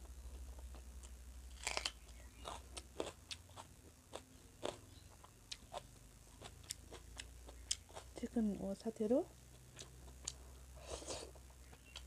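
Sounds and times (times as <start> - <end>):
person chewing food: 0.0 - 8.2, 9.5 - 12.0
sharp crunches: 1.5 - 4.8.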